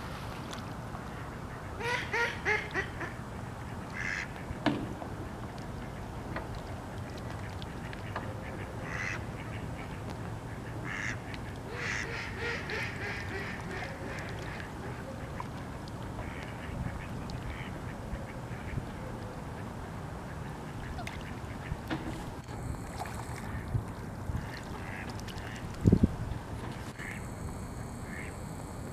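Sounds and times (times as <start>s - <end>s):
ducks quacking: 1.1s - 4.6s, 6.8s - 15.6s, 16.2s - 18.8s, 24.3s - 25.9s, 26.8s - 27.2s, 27.8s - 28.4s.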